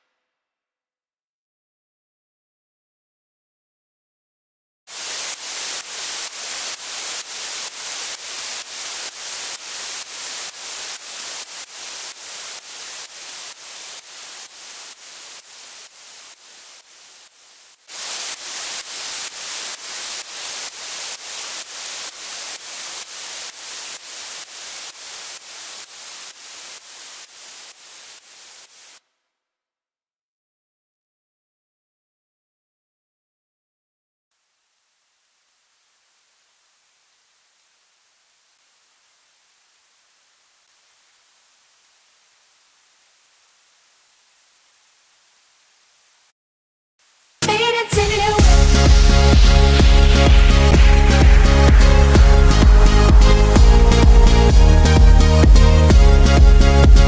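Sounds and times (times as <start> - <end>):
pumping synth white noise: 48.4 - 57.0.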